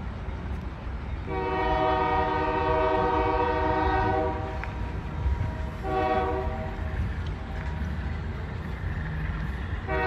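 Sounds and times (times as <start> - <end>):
train rumbling: 0.0 - 10.0
locomotive air horn: 1.3 - 4.7, 5.8 - 6.9.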